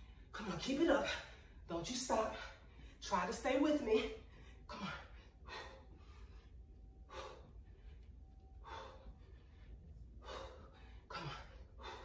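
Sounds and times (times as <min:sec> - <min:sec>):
woman breathing hard: 0:04.1 - 0:12.0.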